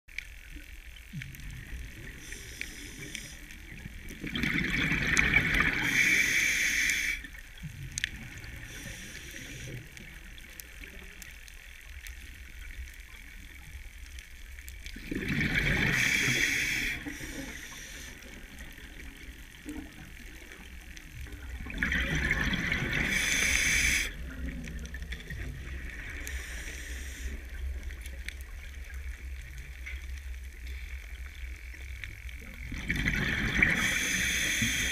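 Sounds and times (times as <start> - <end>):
rush of exhaled bubbles: 3.8 - 6.1, 14.9 - 17.2, 21.4 - 26.3, 32.7 - 34.9
low underwater rumble: 17.1 - 34.0.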